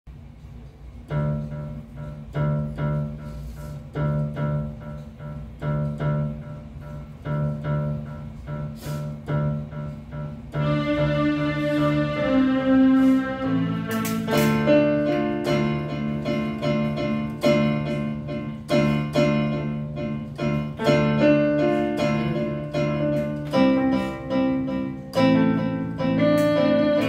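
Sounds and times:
electronic keyboard melody: 0:01.1 - 0:27.0
loud sustained sound: 0:10.5 - 0:17.5.

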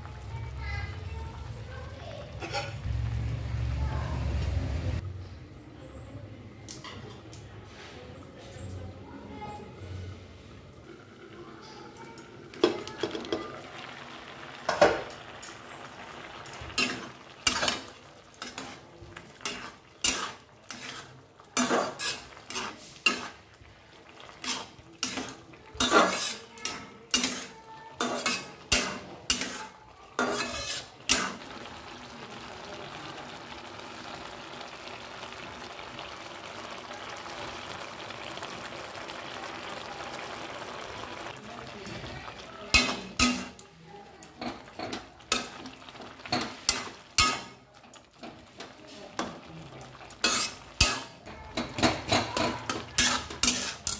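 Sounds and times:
curry simmering and bubbling: 0:00.0 - 0:05.6, 0:07.0 - 0:53.9
spatula scraping metal pan: 0:02.4 - 0:02.8, 0:16.8 - 0:23.4, 0:24.4 - 0:31.4, 0:50.2 - 0:53.9.

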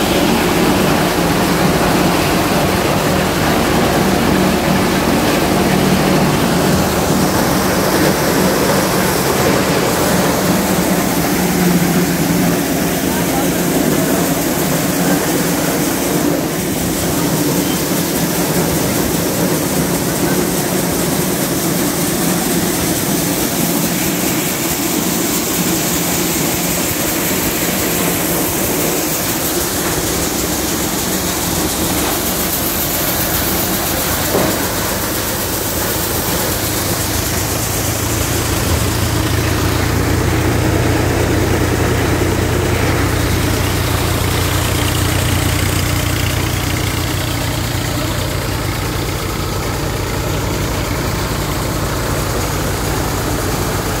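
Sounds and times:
thresher running: 0:00.0 - 0:54.0
tractor engine hum: 0:00.0 - 0:54.0.

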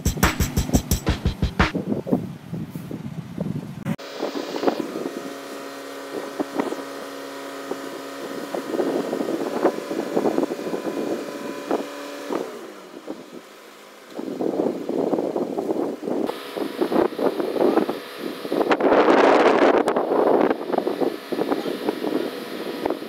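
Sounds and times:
intro music: 0:00.0 - 0:01.7
wind buffeting microphone: 0:01.7 - 0:13.5, 0:14.2 - 0:23.0.

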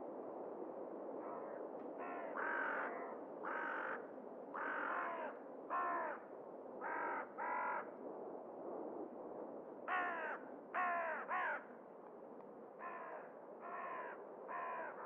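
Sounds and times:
faint crow cawing: 0:01.2 - 0:07.9, 0:09.9 - 0:11.7, 0:12.8 - 0:15.0.

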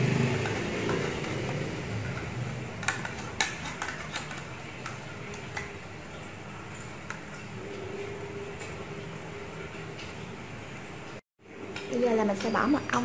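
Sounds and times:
kitchen items clicking and tapping: 0:00.0 - 0:07.6, 0:11.6 - 0:13.0.

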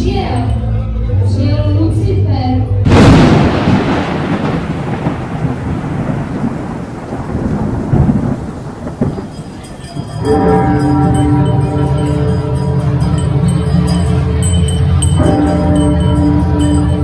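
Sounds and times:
rain-like hiss: 0:02.9 - 0:10.2
rumbling thunder: 0:02.9 - 0:10.9
music with held tones: 0:09.8 - 0:17.0.

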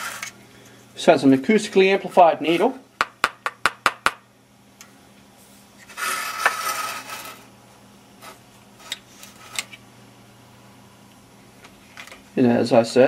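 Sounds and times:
plastic scraping on wooden table: 0:05.8 - 0:07.4.

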